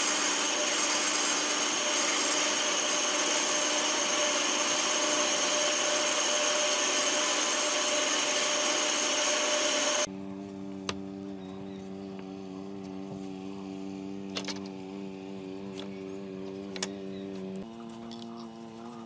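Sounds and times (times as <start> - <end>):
band saw cutting wood: 0.0 - 10.1.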